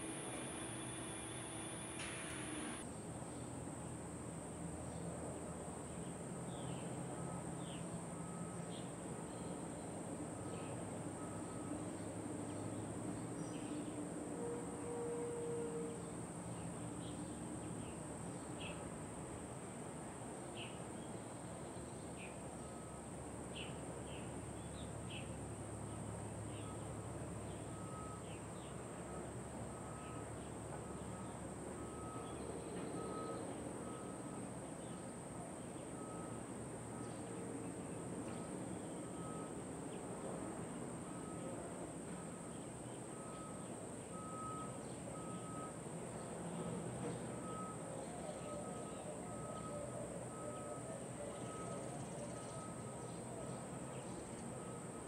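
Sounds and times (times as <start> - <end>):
bird chirps: 0.0 - 2.8
insects droning: 0.0 - 2.8
low background hum: 0.0 - 2.8.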